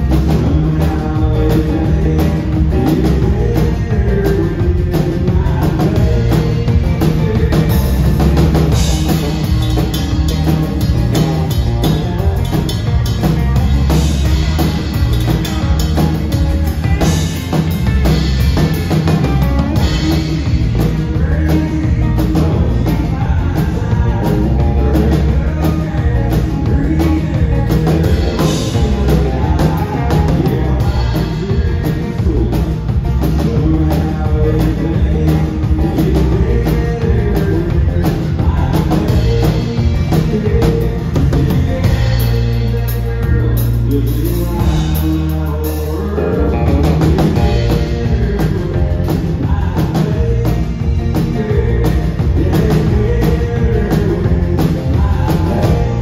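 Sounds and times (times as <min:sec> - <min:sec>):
rock band playing live: 0:00.0 - 0:56.0.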